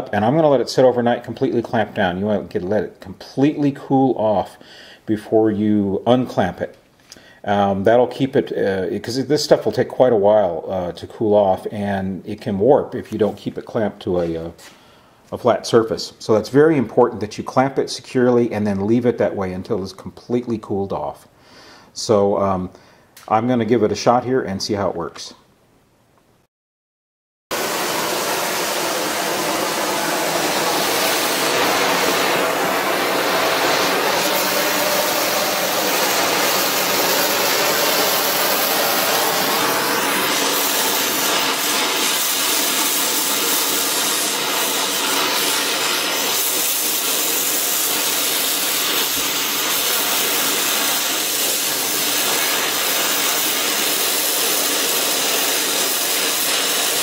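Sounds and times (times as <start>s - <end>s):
torch flame hissing: 27.5s - 57.0s.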